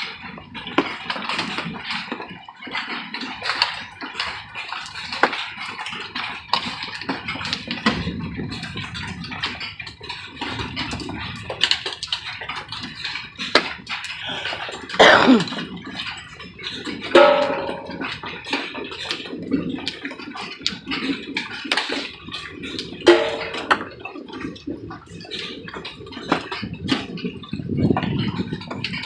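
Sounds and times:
hailstones clicking and tapping: 0.0s - 29.0s
loud hail hits with ringing: 17.1s - 18.3s, 23.1s - 23.9s.

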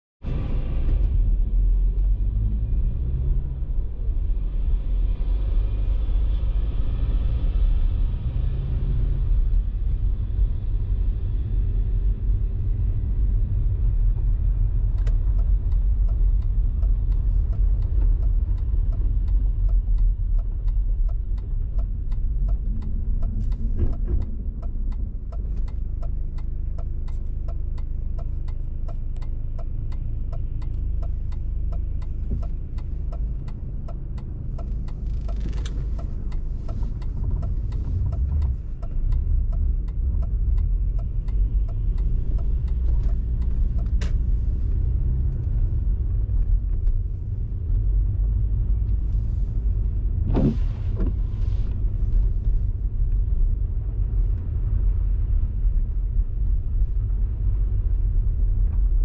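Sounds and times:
road and engine rumble: 0.2s - 59.0s
turn signal ticking: 13.5s - 59.0s.

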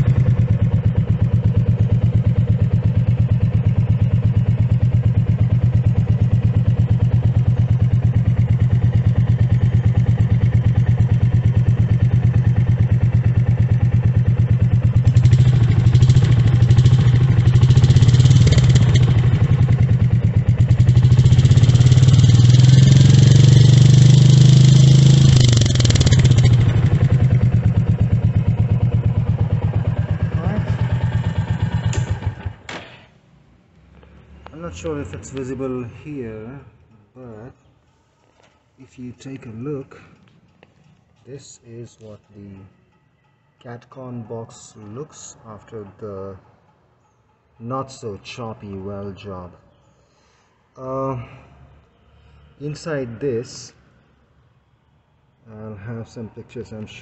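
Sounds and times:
motorcycle engine idling and revving: 0.0s - 33.0s.

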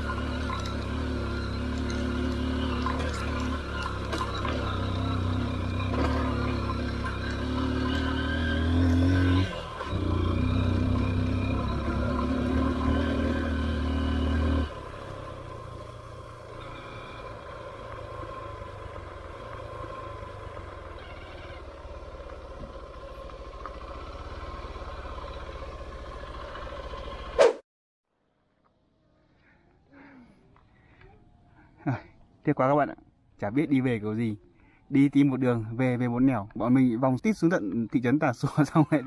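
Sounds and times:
motorcycle engine pulling hard: 0.0s - 27.4s.

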